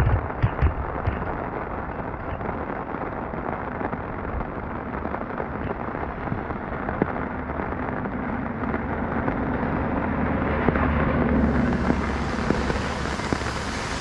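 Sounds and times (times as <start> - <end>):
rain pattering on umbrella: 0.0 - 14.0
low rumble: 6.0 - 14.0.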